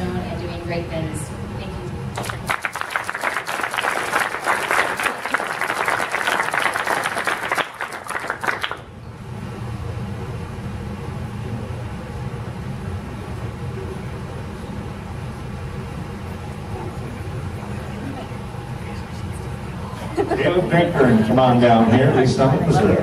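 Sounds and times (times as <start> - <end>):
steady low hum: 0.0 - 23.0
audience applause: 2.2 - 8.9.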